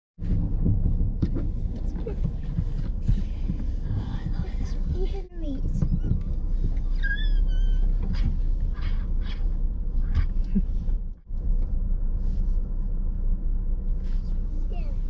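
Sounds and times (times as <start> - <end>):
scratching and tapping on microphone: 0.2 - 12.8
steady low rumble: 0.2 - 15.0.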